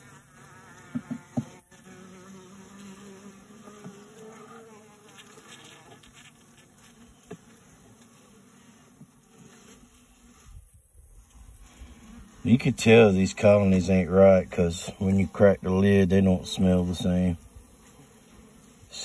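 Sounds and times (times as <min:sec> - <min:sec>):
bees buzzing: 0:00.0 - 0:19.0
faint tap: 0:00.9 - 0:01.6.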